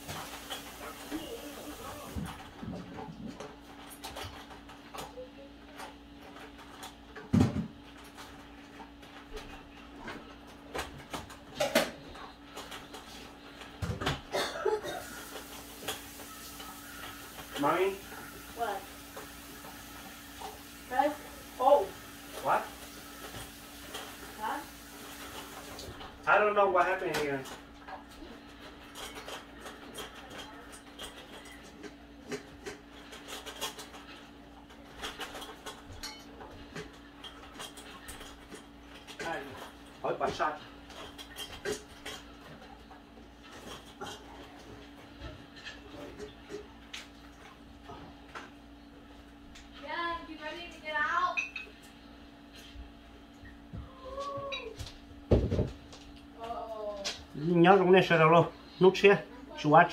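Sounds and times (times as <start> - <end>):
dishes and utensils clinking: 34.9 - 39.3, 51.3 - 51.9.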